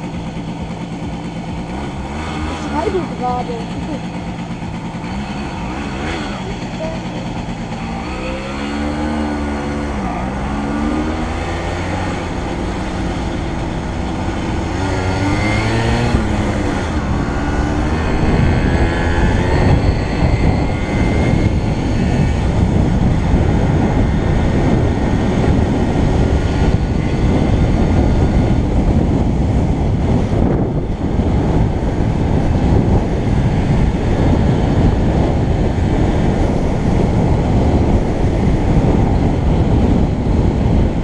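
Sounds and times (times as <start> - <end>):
vehicle engine running: 0.0 - 41.0
wind and road noise: 0.0 - 41.0.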